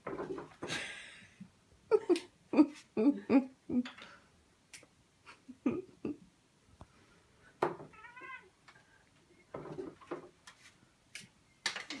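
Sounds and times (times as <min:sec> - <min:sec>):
cat meowing: 0:07.9 - 0:08.5.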